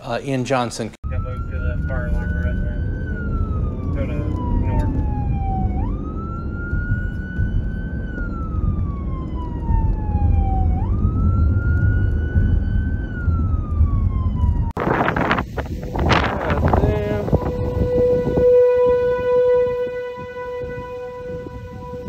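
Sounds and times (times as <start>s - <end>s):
low rumble of wind: 1.0s - 22.0s
siren wailing: 1.0s - 22.0s
burst of noise: 14.7s - 18.6s.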